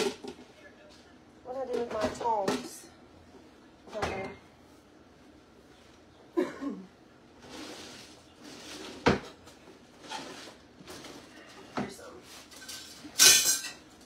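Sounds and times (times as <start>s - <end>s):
kitchen knocks and clatters: 0.0s - 0.5s, 1.6s - 2.9s, 3.9s - 4.4s, 8.6s - 14.0s.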